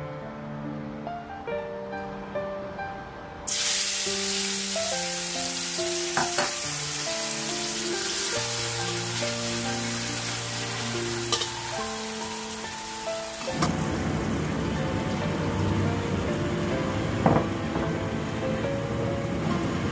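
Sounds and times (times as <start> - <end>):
food sizzling in hot oil: 3.5 - 19.9.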